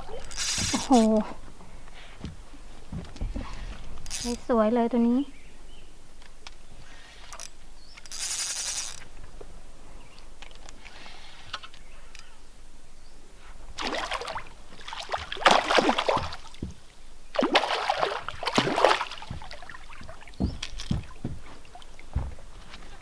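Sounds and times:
fish splashing in water: 13.8s - 22.1s
dull knocks: 15.2s - 16.9s, 18.2s - 23.0s.

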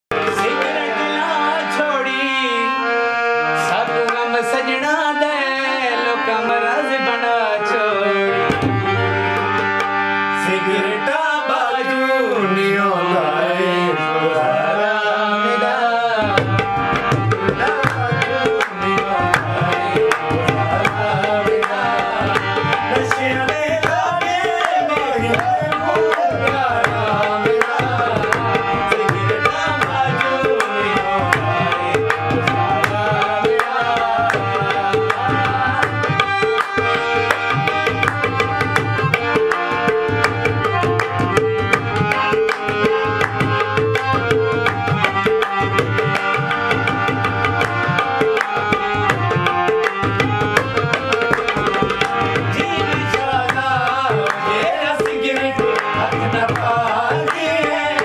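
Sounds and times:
harmonium melody: 0.0s - 58.0s
tabla drums: 8.4s - 10.4s, 16.2s - 58.0s.

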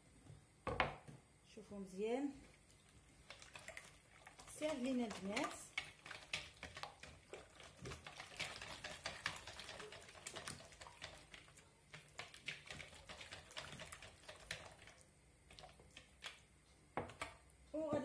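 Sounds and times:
wire whisk beating in a bowl: 4.5s - 14.9s.

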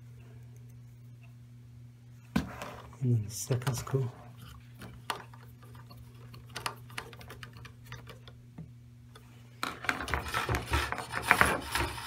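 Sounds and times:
steady low hum: 0.0s - 12.0s
cables clicking and rubbing: 3.5s - 12.0s.

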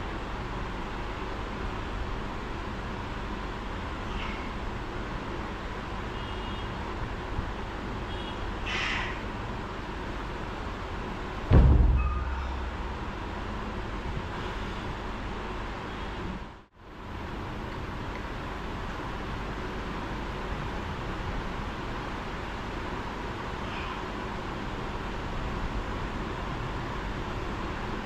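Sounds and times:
dumbbells thudding on floor: 11.5s - 13.0s
short metallic ring: 11.6s - 13.0s.

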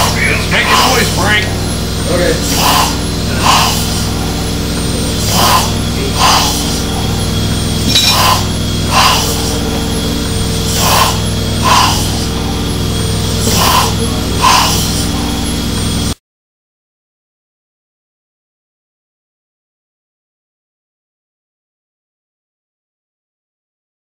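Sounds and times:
steady low hum: 0.0s - 16.2s
steam engine puffing: 0.0s - 16.2s.

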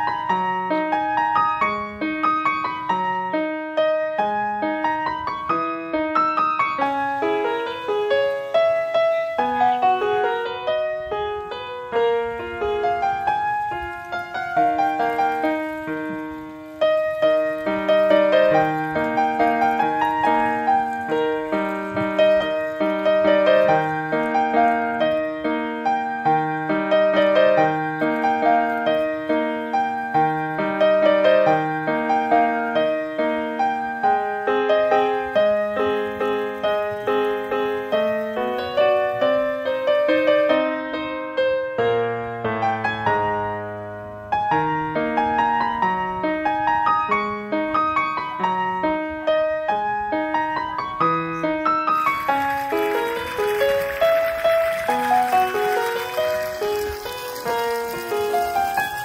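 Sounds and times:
piano music: 0.0s - 59.0s.

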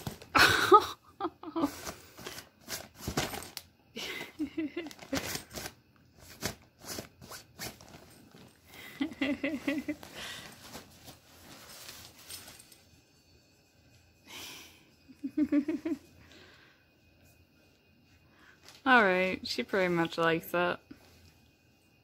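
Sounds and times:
fabric tunnel rustling and crinkling: 4.8s - 12.7s.

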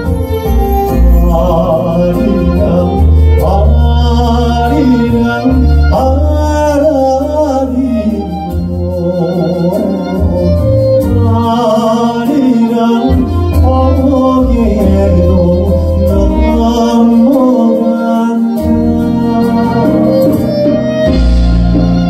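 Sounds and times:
man singing into a microphone: 0.0s - 21.0s
band accompaniment: 0.0s - 22.0s
upright double bass: 0.0s - 22.0s.

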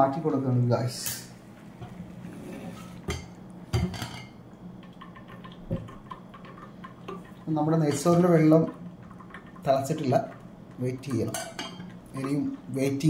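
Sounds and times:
steady low hum: 0.0s - 13.0s
pots and pans clanking: 1.8s - 4.4s, 11.2s - 12.4s.

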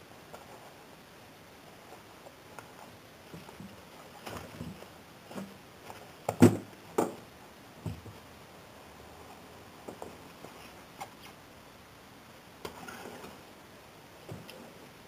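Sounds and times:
plush toys rustling: 1.6s - 6.8s.

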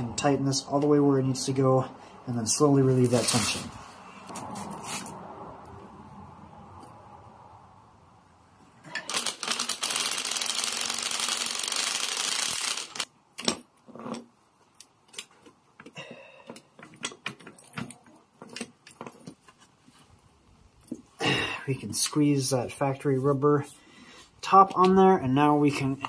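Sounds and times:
cordless impact driver running: 9.1s - 13.1s.

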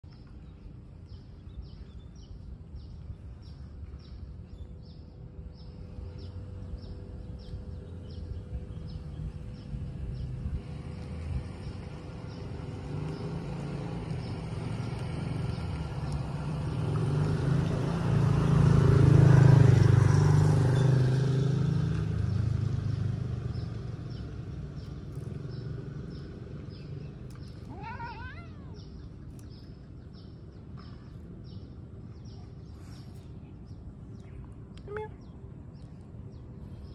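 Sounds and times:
vehicle passing: 5.5s - 29.5s
cat meow: 27.7s - 28.8s.

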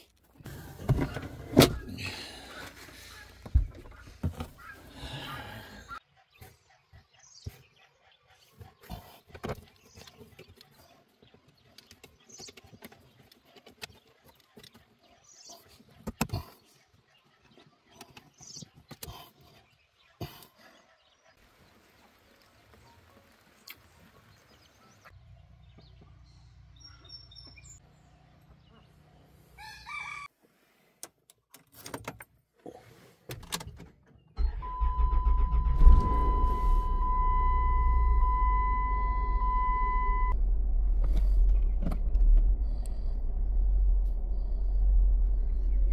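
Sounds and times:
car engine starting and running: 34.4s - 45.9s.

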